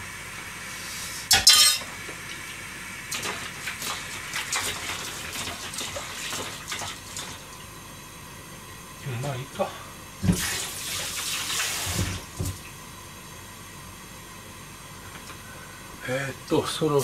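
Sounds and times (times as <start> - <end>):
pots and metal utensils clinking: 1.3 - 1.9.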